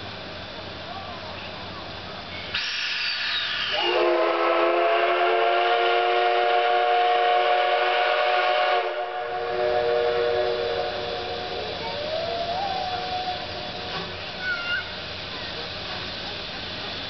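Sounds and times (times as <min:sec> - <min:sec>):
hissing steam: 0:00.0 - 0:17.0
steam whistle blast: 0:02.6 - 0:11.8.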